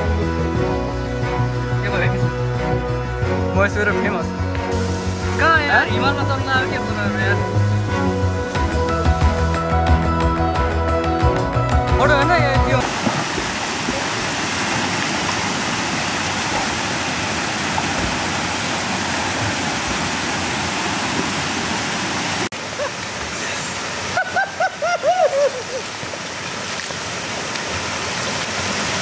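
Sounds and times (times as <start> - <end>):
man's voice: 5.4 - 7.4, 11.9 - 12.8
river water rushing over weir: 12.8 - 29.0.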